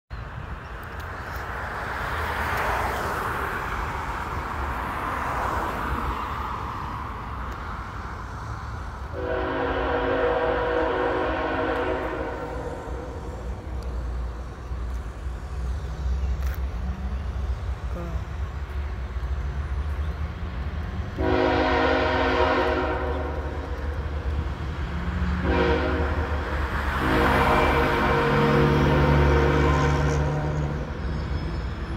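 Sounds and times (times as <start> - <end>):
passing train rumble: 0.1 - 31.9
train air horn blasts: 9.1 - 13.4, 21.2 - 23.7, 25.3 - 30.8.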